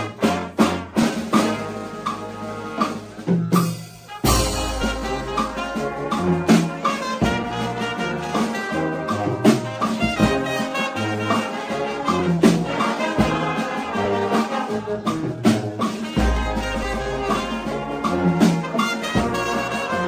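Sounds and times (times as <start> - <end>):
music with bass and beat: 3.4 - 7.0, 16.1 - 18.8.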